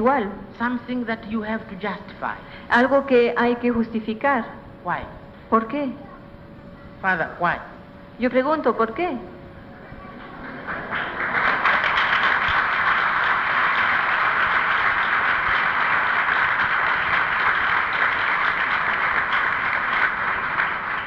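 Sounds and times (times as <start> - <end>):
audience applauding: 10.2 - 21.0.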